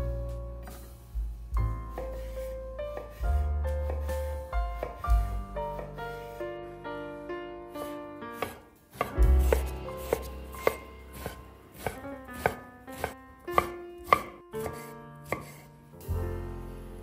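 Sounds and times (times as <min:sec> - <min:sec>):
soft background music: 0:00.0 - 0:17.0
knife chopping on wooden board: 0:01.9 - 0:05.9, 0:08.4 - 0:15.6.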